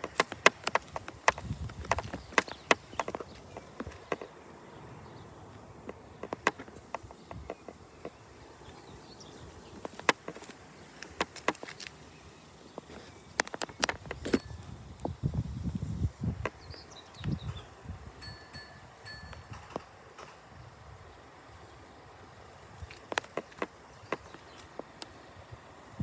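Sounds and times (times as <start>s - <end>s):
sharp clicks and taps: 0.0s - 4.3s, 5.9s - 8.2s, 9.8s - 11.9s, 13.4s - 14.4s.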